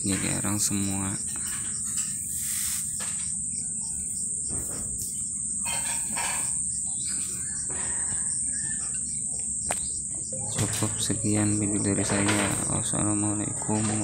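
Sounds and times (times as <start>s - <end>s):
insects trilling: 0.0s - 14.0s
bird chirps: 0.3s - 14.0s.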